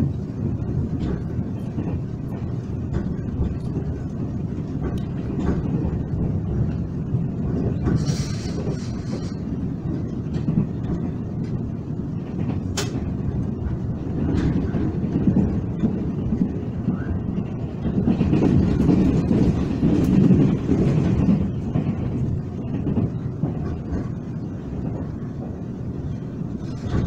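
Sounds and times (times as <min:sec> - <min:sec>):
train rumbling inside carriage: 0:00.0 - 0:27.0
brief hiss: 0:08.0 - 0:09.4.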